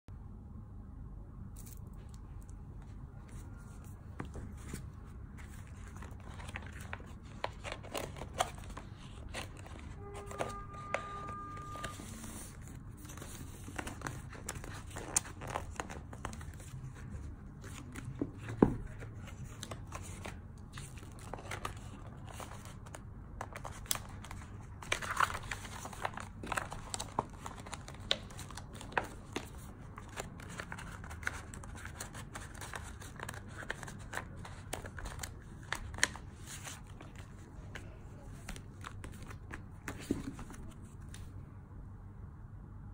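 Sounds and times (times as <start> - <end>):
brief steady tone: 9.9 - 12.4
plastic sheet crinkling: 18.9 - 40.8.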